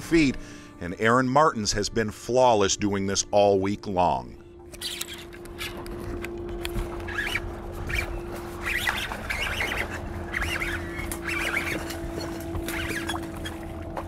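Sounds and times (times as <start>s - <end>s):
steady low hum: 1.8s - 14.0s
birds chattering: 7.1s - 13.5s.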